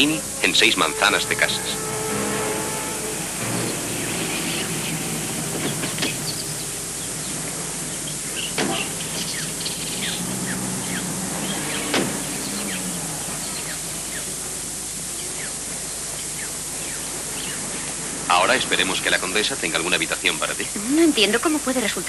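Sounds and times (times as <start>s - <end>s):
birds chirping: 0.0s - 19.2s
car engine idling: 0.0s - 20.8s
steady hiss: 0.0s - 22.0s
car doors shutting: 3.4s - 6.6s, 8.4s - 13.8s.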